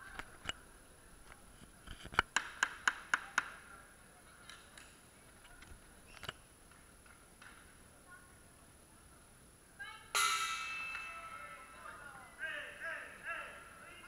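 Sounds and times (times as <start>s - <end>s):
sharp claps echoing in a hall: 2.2s - 3.7s, 10.2s - 11.4s.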